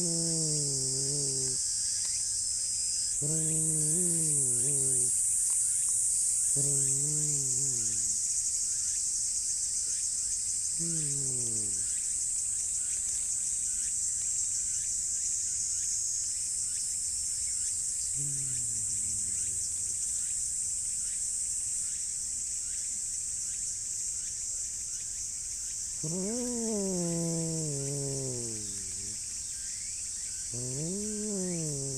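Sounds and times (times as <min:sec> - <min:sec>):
cat growling: 0:00.0 - 0:01.6, 0:03.2 - 0:05.2, 0:06.5 - 0:08.2, 0:10.8 - 0:11.9, 0:18.2 - 0:20.0, 0:26.0 - 0:29.2, 0:30.5 - 0:31.9
insects droning: 0:00.0 - 0:31.9.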